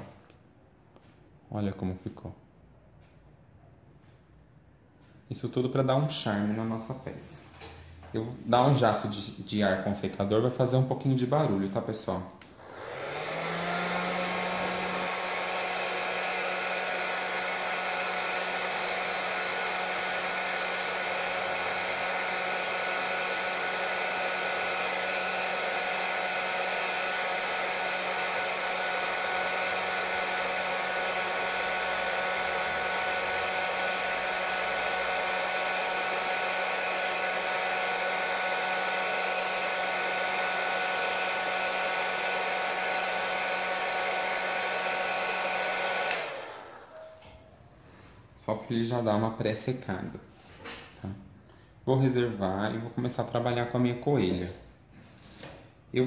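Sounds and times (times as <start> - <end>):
hair dryer blowing: 12.5 - 47.0.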